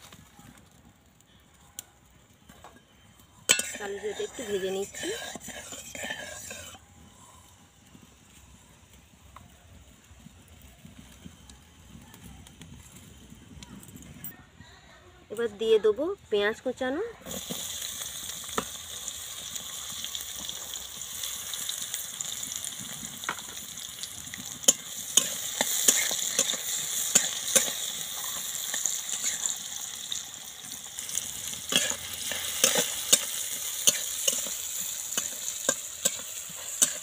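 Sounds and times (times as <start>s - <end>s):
onion sizzling in hot oil: 3.4s - 11.4s, 15.5s - 37.0s
metal spatula scraping a pan: 3.5s - 6.8s, 24.4s - 30.1s, 30.9s - 37.0s.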